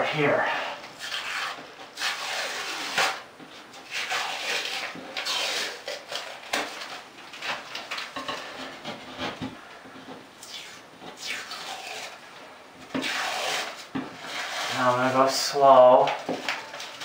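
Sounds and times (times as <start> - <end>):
ceiling texture ripping off: 1.0 - 3.2, 3.8 - 6.8.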